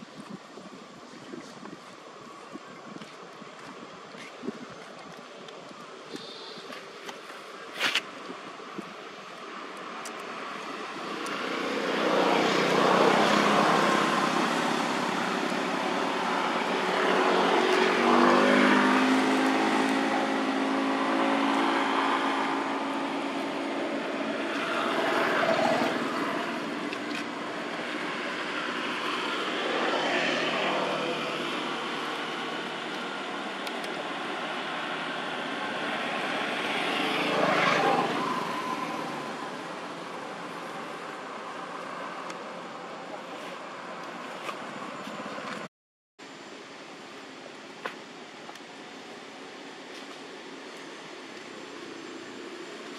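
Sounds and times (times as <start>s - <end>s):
passing motor vehicles: 8.6s - 45.7s.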